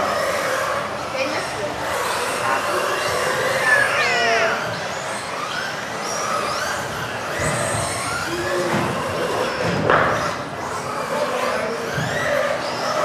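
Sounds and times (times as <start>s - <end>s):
electric motors whining: 0.0s - 13.0s.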